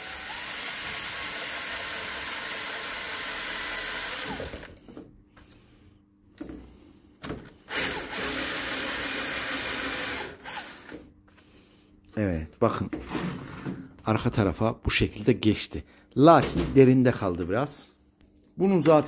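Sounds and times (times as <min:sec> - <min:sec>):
electric drill boring: 0:00.0 - 0:04.8, 0:07.7 - 0:11.0.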